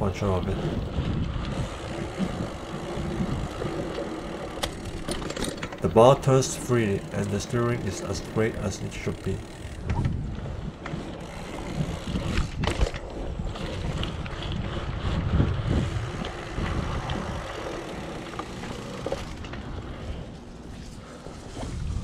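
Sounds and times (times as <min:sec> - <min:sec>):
bike tyres rolling on asphalt: 0:00.0 - 0:22.0
wind buffeting microphone: 0:00.0 - 0:22.0
bike knocks and rattles: 0:00.8 - 0:06.4, 0:09.1 - 0:20.2.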